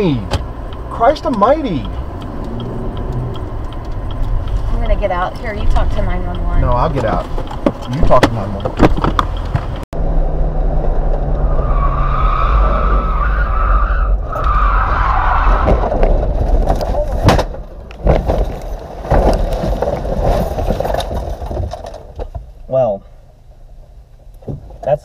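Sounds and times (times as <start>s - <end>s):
car engine running hard: 0.0s - 11.7s
heavy knocks and thumps: 2.9s - 9.8s, 24.4s - 24.9s.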